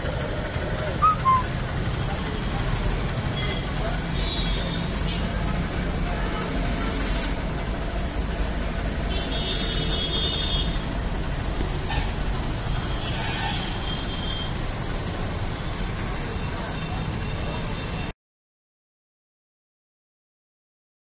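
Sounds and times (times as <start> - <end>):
motorcycle engine idling: 0.0 - 6.6
short air hisses: 5.1 - 5.4, 6.9 - 7.4, 9.5 - 9.9.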